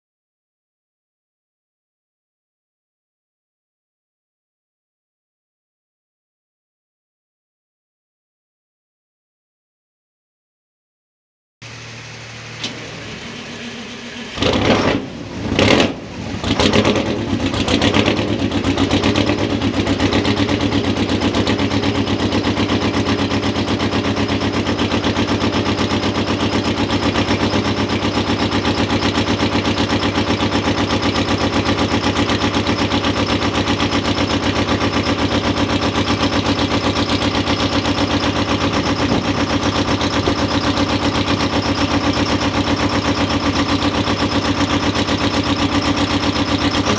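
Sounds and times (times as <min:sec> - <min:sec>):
diesel engine starting and running: 0:11.6 - 0:46.9.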